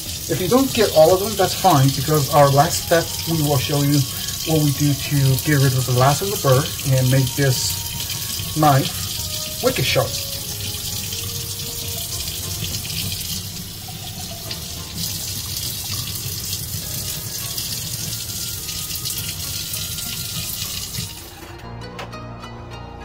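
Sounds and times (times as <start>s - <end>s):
faucet water splashing on stone: 0.0s - 21.3s.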